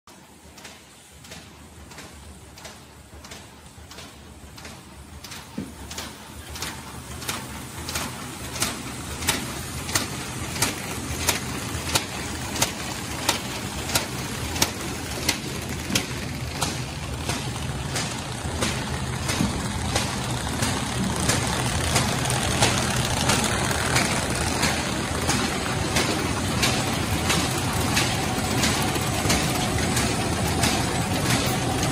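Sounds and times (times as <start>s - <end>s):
steady mechanical hum: 0.1s - 31.9s
machine clacking: 0.4s - 31.9s.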